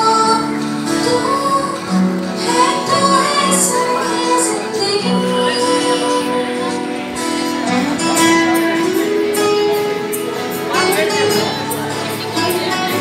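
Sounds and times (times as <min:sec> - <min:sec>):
girl singing into microphone: 0:00.0 - 0:10.1
instrumental accompaniment: 0:00.0 - 0:13.0.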